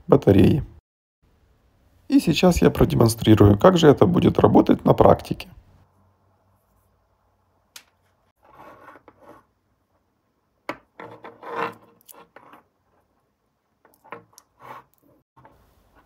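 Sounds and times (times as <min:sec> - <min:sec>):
objects scraping on wooden table: 0:08.4 - 0:09.5, 0:11.0 - 0:13.1, 0:13.9 - 0:16.0.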